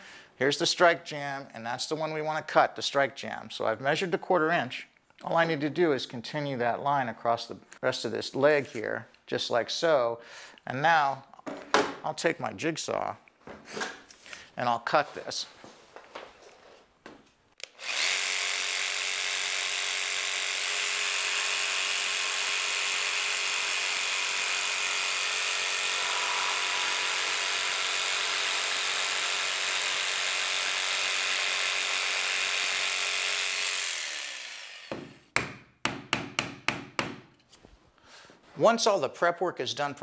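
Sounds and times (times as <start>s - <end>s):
jigsaw cutting wood: 17.6s - 35.2s.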